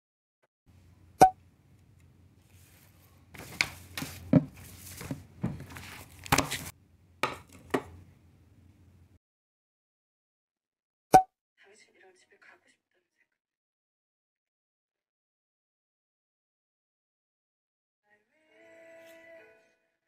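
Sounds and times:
soft knocks and scrapes: 2.4s - 6.7s.

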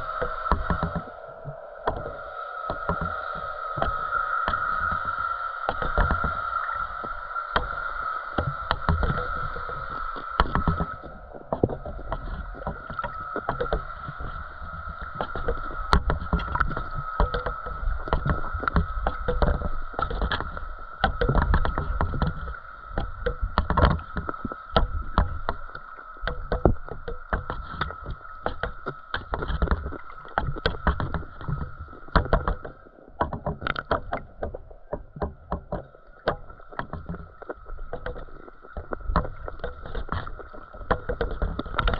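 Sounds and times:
muffled water sloshing: 0.0s - 41.9s
sharp clicks and knocks: 8.4s - 41.9s.

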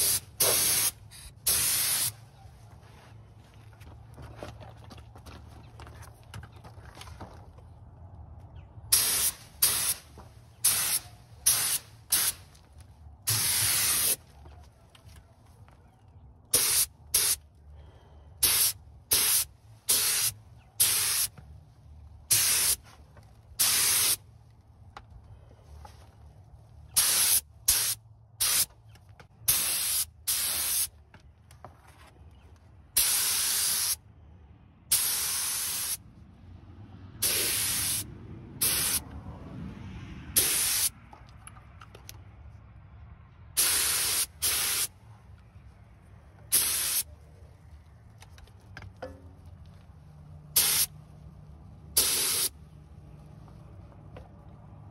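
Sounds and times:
paint spray gun hissing: 0.0s - 2.2s, 9.0s - 10.0s, 10.6s - 12.4s, 13.3s - 14.2s, 16.6s - 17.4s, 18.4s - 21.3s, 22.3s - 22.8s, 23.6s - 24.2s, 27.0s - 28.7s, 29.5s - 30.9s, 33.0s - 34.0s, 34.9s - 36.0s, 37.2s - 38.0s, 38.6s - 39.0s, 40.4s - 40.9s, 43.6s - 44.9s, 46.5s - 47.0s, 50.6s - 50.9s, 52.0s - 52.5s.

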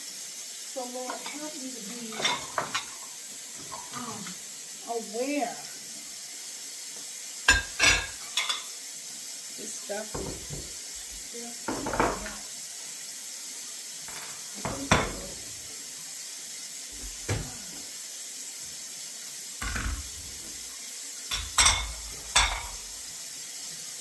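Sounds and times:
dishes and cutlery clattering: 2.0s - 4.4s, 7.5s - 8.7s, 11.7s - 12.4s, 14.1s - 15.4s, 21.3s - 22.9s.

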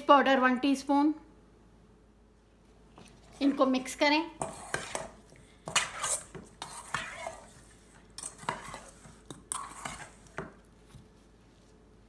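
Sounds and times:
metal spoon scraping steel bowl: 4.4s - 10.6s.

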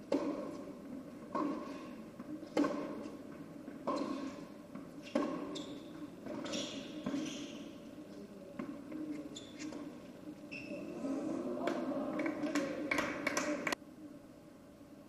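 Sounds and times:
racquets striking tennis ball: 0.0s - 7.8s
shoes squeaking on court: 0.2s - 11.1s.

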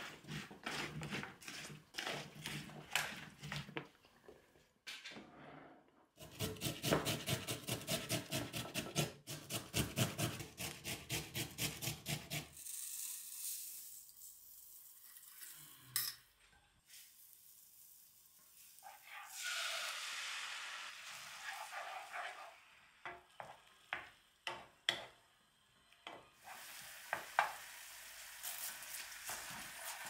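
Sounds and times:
tomato sizzling in frying pan: 16.9s - 25.2s, 26.4s - 30.0s.

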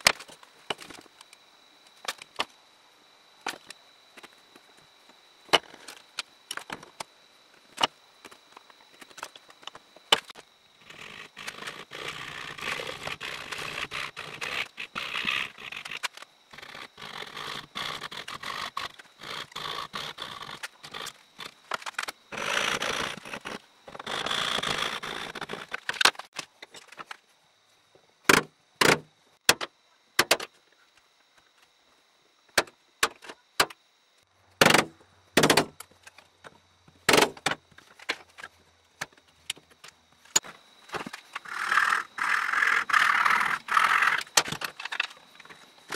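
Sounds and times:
hand saw cutting wood: 10.8s - 16.0s, 16.6s - 21.1s, 22.3s - 25.7s, 41.4s - 44.3s.

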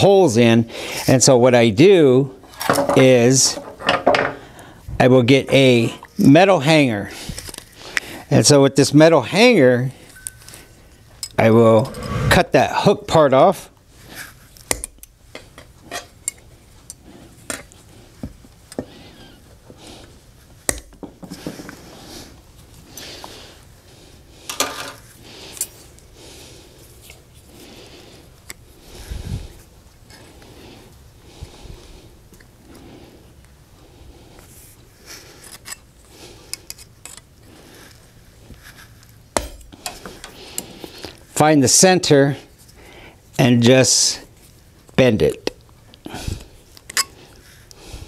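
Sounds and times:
metal wire clicks and scrapes: 35.4s - 40.8s.

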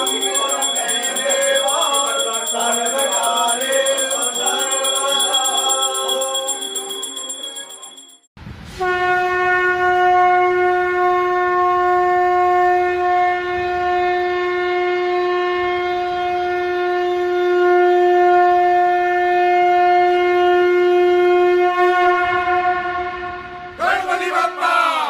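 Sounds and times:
conch shell blown: 8.8s - 23.8s.

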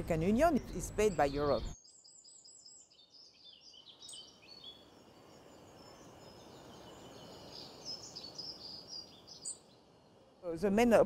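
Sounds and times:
low background noise: 0.0s - 11.0s
small birds chirping: 0.0s - 11.0s.

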